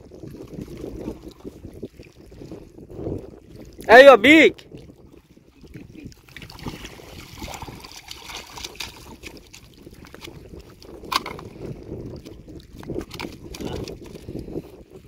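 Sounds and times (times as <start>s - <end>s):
fish splashing in water: 6.2s - 11.5s.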